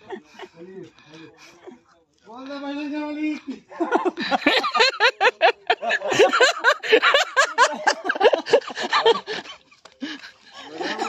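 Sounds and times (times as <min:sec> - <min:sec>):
men shouting and laughing: 0:03.3 - 0:11.0.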